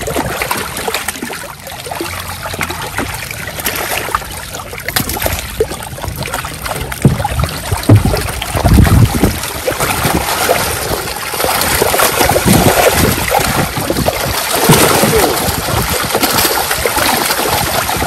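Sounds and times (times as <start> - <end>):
fish thrashing and splashing: 0.0 - 18.0.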